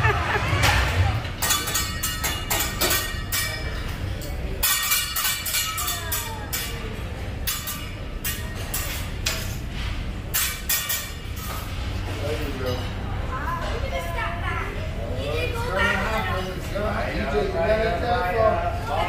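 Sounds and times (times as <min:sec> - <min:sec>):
metal utensils clanking on griddle: 0:00.7 - 0:13.0.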